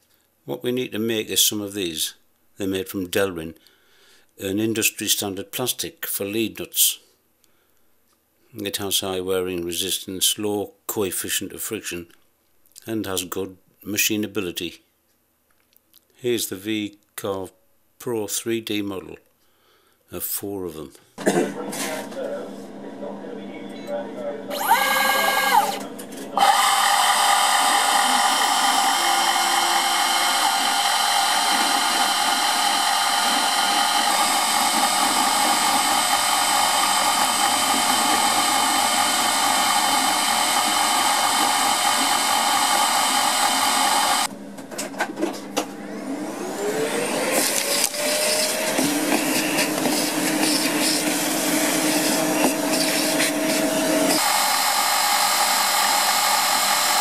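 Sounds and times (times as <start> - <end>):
cutter machining plastic: 24.5 - 44.3, 47.2 - 57.0
router spindle whining: 24.5 - 44.4, 45.8 - 57.0.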